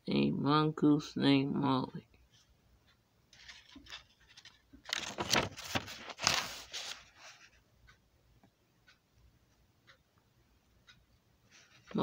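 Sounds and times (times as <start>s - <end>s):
paper page rustling: 3.4s - 7.6s.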